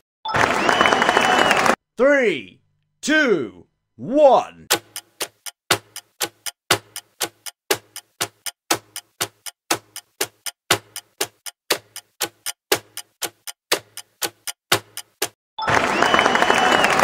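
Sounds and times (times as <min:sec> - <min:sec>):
clock ticking: 0:04.3 - 0:15.4.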